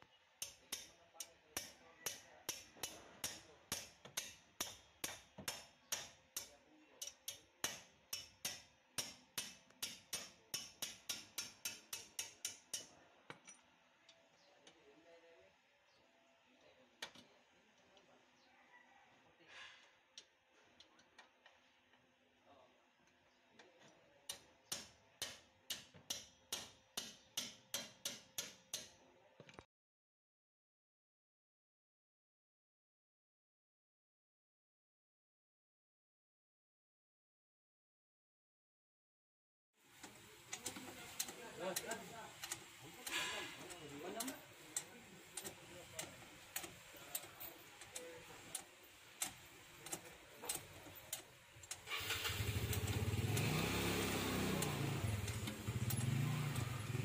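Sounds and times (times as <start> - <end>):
hammer striking metal: 0.4 - 1.0, 1.6 - 12.9, 24.3 - 29.0
sharp metallic clicks: 0.4 - 13.6, 40.0 - 57.0.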